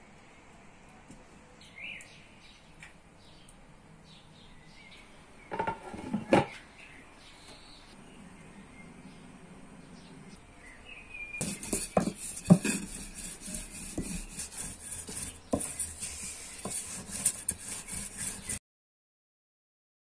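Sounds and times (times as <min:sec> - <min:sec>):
utensil knocking against pan: 0:11.4 - 0:13.0.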